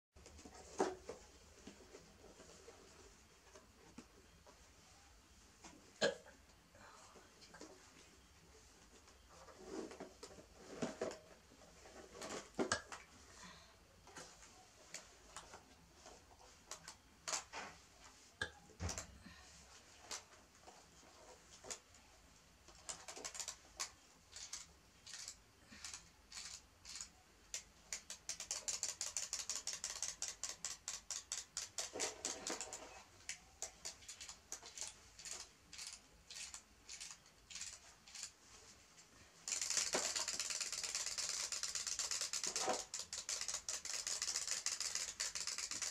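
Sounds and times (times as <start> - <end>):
wind-up toys ticking: 39.5 - 45.9.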